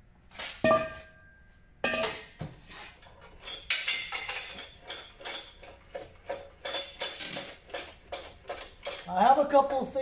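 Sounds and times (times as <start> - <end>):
light metallic clinks and rattles: 3.1 - 9.6
metal tube clanking on vise: 3.3 - 9.8.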